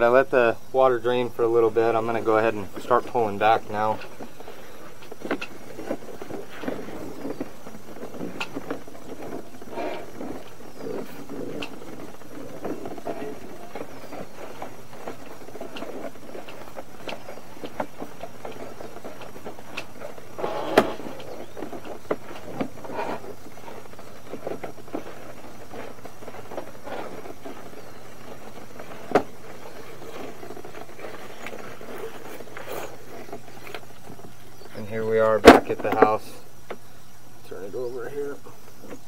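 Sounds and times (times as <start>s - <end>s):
cable scraping and rubbing: 1.7s - 35.0s
short squeaks: 20.3s - 23.4s.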